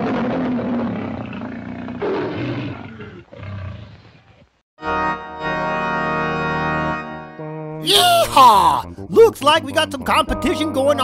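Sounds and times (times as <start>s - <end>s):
lion roaring: 0.0s - 4.5s
sustained organ-like music chord: 4.8s - 11.0s.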